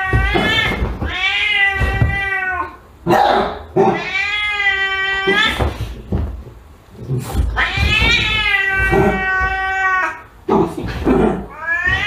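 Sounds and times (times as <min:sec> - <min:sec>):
cat yowling: 0:00.0 - 0:02.8, 0:03.8 - 0:05.8, 0:07.6 - 0:10.3, 0:11.5 - 0:12.0.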